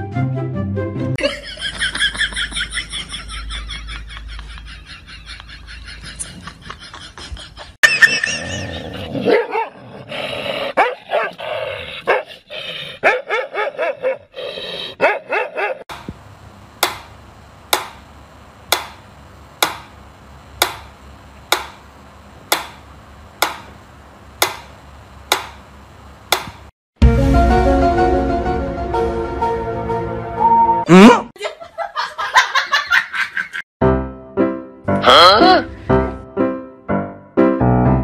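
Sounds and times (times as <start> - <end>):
music: 0.0 - 1.2, 27.0 - 30.9, 33.8 - 38.0
dog barking and yipping: 9.2 - 9.8, 10.8 - 11.4, 12.1 - 12.3, 13.0 - 14.3, 15.0 - 15.8.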